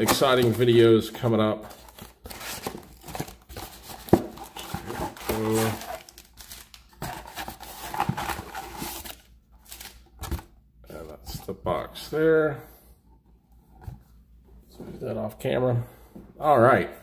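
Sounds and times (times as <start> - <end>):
packaging crinkling and tearing: 1.6 - 10.0.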